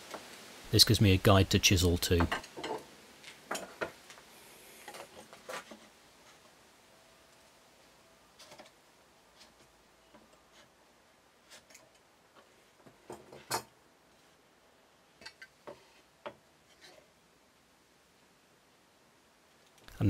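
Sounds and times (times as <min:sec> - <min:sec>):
tools tapping on wooden board: 0:02.2 - 0:02.8.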